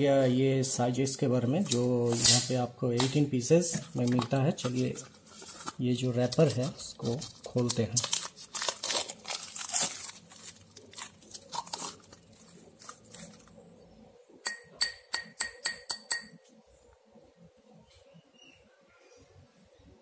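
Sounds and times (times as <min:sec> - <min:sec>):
plastic wrap crinkling: 0:03.8 - 0:13.8
glass bowls clinking: 0:14.4 - 0:16.4.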